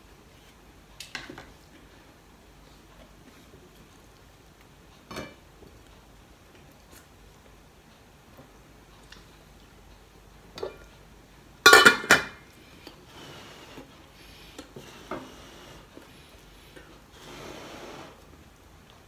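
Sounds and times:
clicks and knocks of eating: 0:02.9 - 0:13.1
metal lid clattering on pot: 0:11.7 - 0:12.4.

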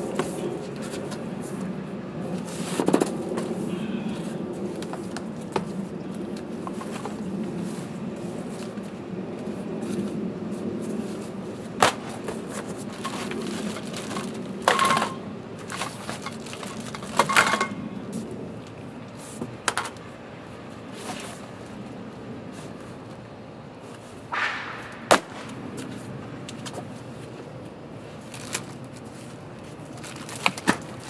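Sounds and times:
plastic wrap and fabric rustling: 0:12.6 - 0:14.9, 0:15.6 - 0:17.4, 0:29.9 - 0:31.0.

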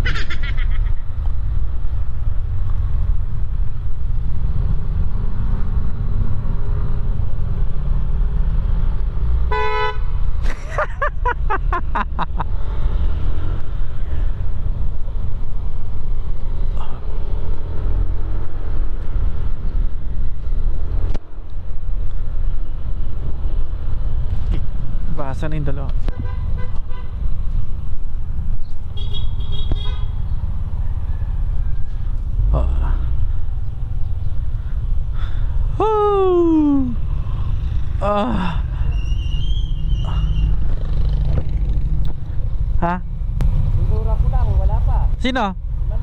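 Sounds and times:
vehicle horn honking: 0:09.5 - 0:10.1, 0:26.1 - 0:27.2, 0:29.0 - 0:30.2
scooter engine and wind rumble: 0:17.6 - 0:43.2.

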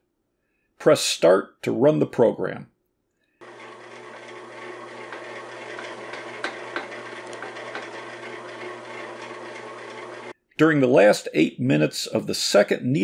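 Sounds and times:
bread machine motor running: 0:03.4 - 0:10.3.

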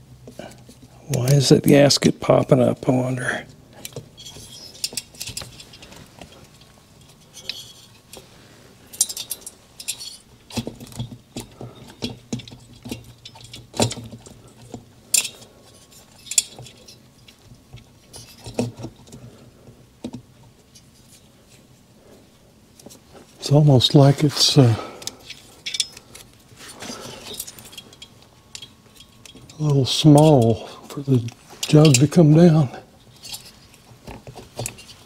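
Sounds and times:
light metal clicks and clinks: 0:08.9 - 0:18.6, 0:25.0 - 0:26.4, 0:27.1 - 0:32.2.

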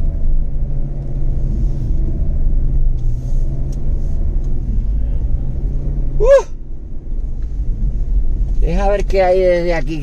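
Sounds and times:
car engine hum: 0:00.0 - 0:10.0
road noise: 0:00.0 - 0:10.0.

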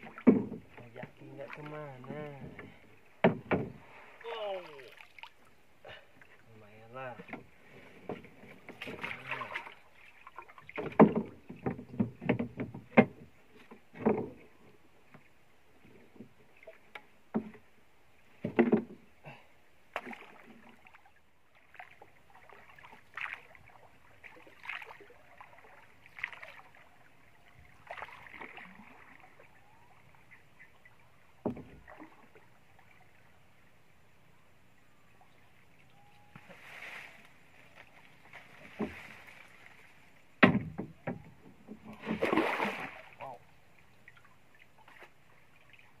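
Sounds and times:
paddle stroking through water: 0:00.0 - 0:05.3, 0:07.2 - 0:14.6, 0:20.0 - 0:32.5, 0:36.4 - 0:43.2
wooden knocks on boat deck: 0:00.2 - 0:00.7, 0:03.2 - 0:03.8, 0:10.8 - 0:13.3, 0:31.4 - 0:31.9, 0:40.4 - 0:41.4.

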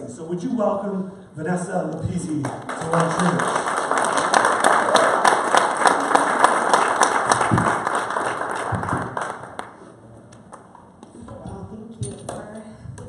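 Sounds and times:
congregation clapping: 0:02.1 - 0:10.8.

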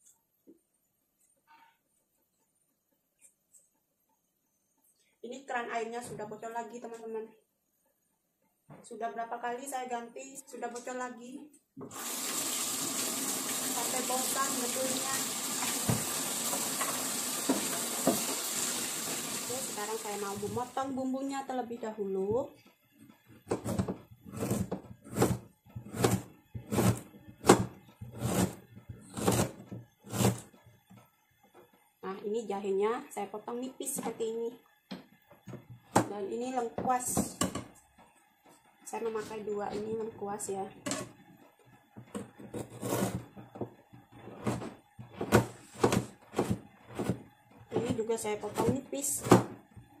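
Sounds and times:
knife chopping on plastic board: 0:23.5 - 0:30.5, 0:42.2 - 0:43.7, 0:44.4 - 0:49.6.

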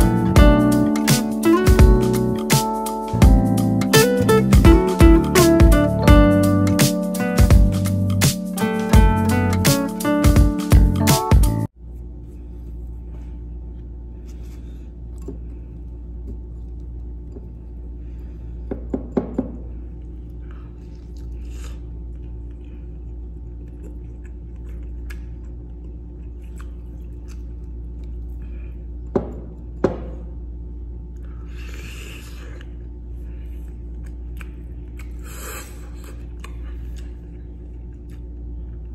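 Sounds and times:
steady low hum: 0:00.0 - 0:38.9
man chewing and biting: 0:19.9 - 0:29.7, 0:31.1 - 0:38.9.

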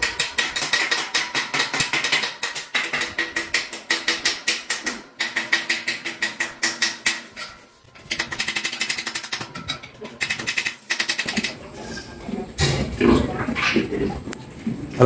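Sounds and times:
rapid metallic clicking: 0:00.0 - 0:11.6.

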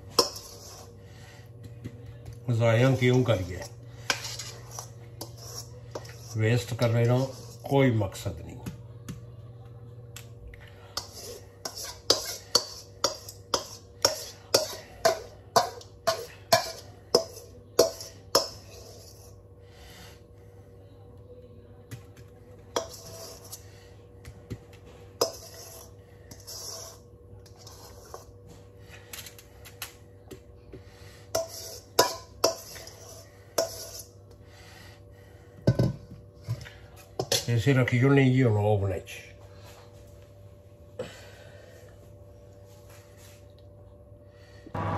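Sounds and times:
spoon scraping metal bowl: 0:00.0 - 0:01.1, 0:02.8 - 0:07.9, 0:10.9 - 0:19.5, 0:22.7 - 0:23.9, 0:25.1 - 0:28.4, 0:31.2 - 0:34.3
spoon tapping metal bowl: 0:11.7 - 0:18.6.

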